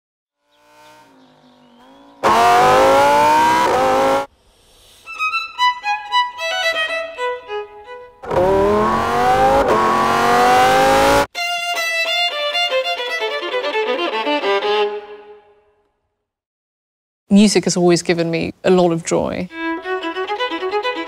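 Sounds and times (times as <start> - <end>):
sports car accelerating hard: 0.4 - 4.3, 8.2 - 11.3.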